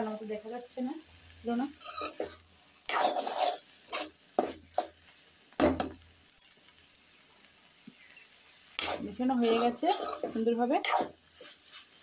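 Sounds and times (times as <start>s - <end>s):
vegetables frying: 0.0s - 12.0s
metal spoon scraping a metal pan: 1.7s - 4.9s, 8.8s - 11.8s.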